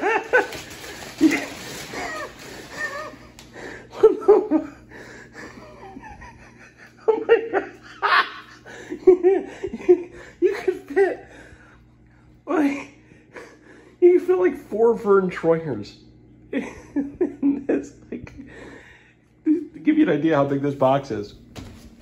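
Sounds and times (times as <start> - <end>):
man laughing: 0.0 - 11.7, 12.5 - 14.2, 16.5 - 18.8, 19.4 - 20.0.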